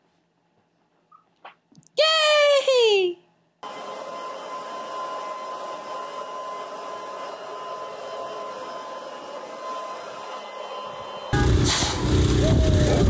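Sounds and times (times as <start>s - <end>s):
electric leaf blower whine: 3.6s - 13.0s.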